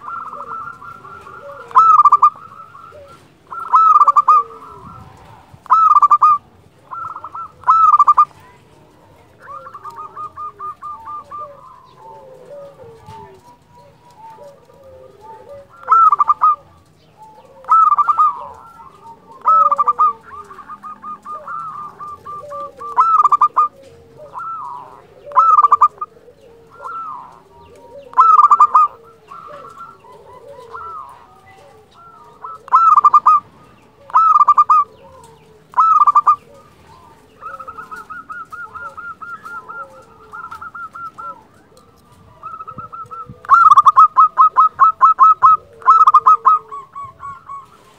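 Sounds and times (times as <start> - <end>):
fast repeated bird notes: 0.0 - 4.9, 5.6 - 8.4, 15.6 - 16.9, 17.6 - 23.7, 24.3 - 26.1, 28.1 - 30.0, 32.1 - 34.9, 35.7 - 41.4
dove cooing: 0.0 - 47.9.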